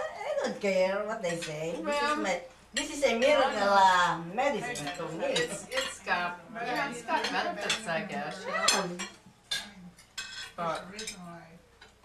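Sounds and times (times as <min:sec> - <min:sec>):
indistinct table conversation: 0:00.0 - 0:12.0
cutlery clinking on plates: 0:04.6 - 0:06.1, 0:06.7 - 0:11.2.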